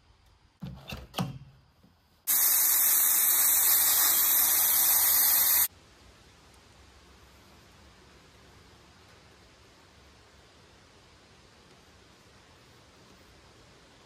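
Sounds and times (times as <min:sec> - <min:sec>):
air hissing out of tire: 0:02.3 - 0:05.7.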